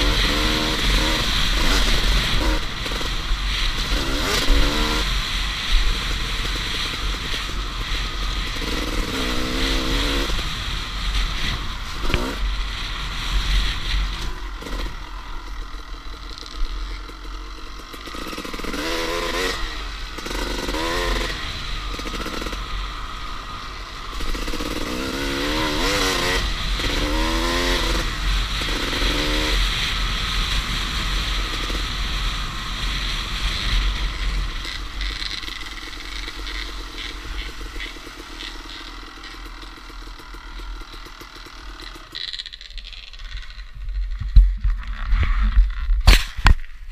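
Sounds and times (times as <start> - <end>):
dirt bike engine revving: 0.0 - 44.4
wind rumble on microphone: 43.4 - 46.9.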